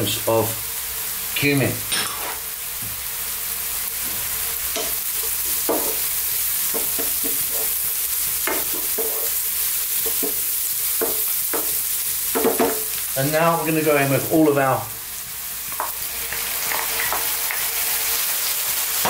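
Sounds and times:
onions sizzling in a frying pan: 0.0s - 19.0s
wooden spoon scraping a pan: 6.7s - 13.0s.

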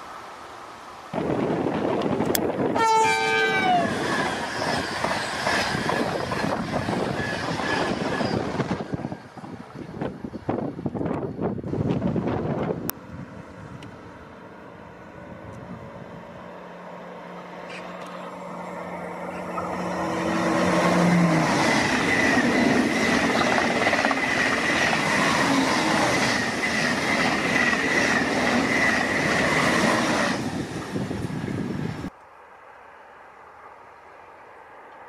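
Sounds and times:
high whine of train: 0.0s - 35.0s
high-speed train passing: 0.0s - 35.0s
train wheels beating: 3.0s - 10.2s, 19.2s - 30.6s.

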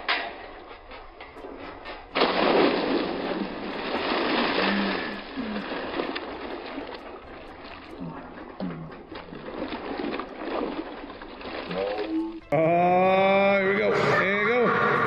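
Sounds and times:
water churning and sloshing: 0.0s - 15.0s
loud splash into pool: 2.2s - 7.0s.

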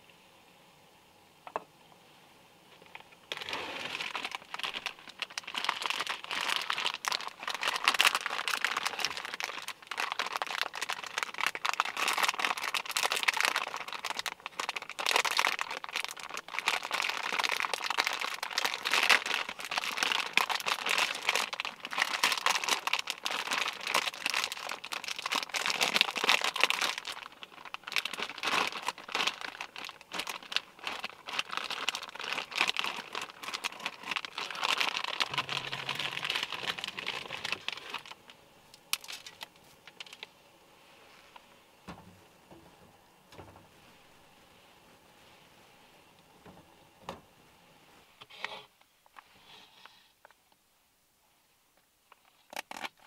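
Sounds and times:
plastic wrapper crinkling: 2.8s - 40.4s, 52.1s - 53.0s.

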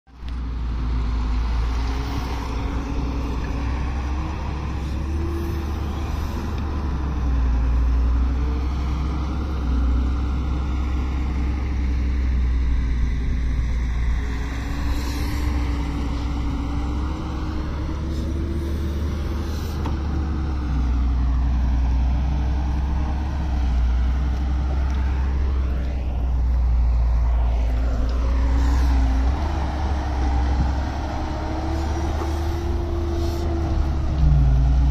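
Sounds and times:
excavator diesel engine: 0.1s - 34.9s
dump truck driving off: 0.2s - 34.9s
low rumble: 20.8s - 34.9s.

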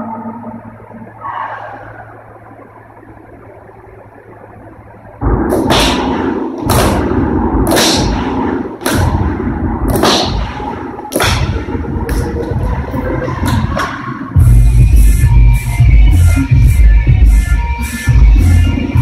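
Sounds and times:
low steady hum: 0.0s - 17.5s
electronic dance music: 5.1s - 19.0s.

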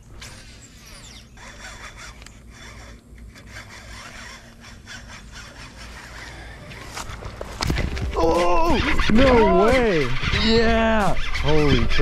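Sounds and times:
fishing reel cranking whir: 0.0s - 7.1s.

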